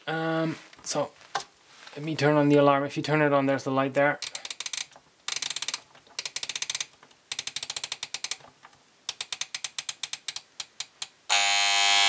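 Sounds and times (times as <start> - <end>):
alarm clock ratcheting clicks: 4.2 - 8.4, 9.1 - 11.1
alarm clock electric buzz: 11.3 - 12.0.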